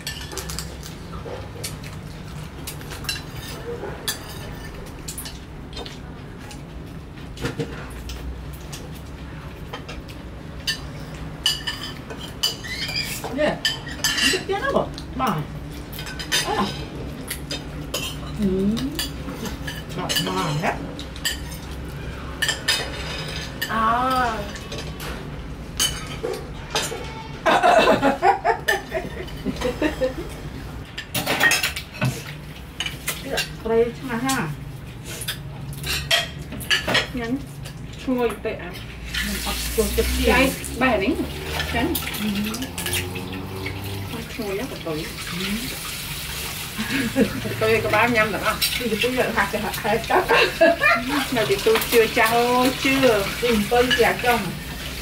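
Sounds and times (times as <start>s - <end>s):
spoons clinking on ceramic plates: 10.6s - 14.5s, 25.8s - 27.2s, 35.3s - 37.1s
spoons clinking on ceramic bowls: 41.4s - 43.3s.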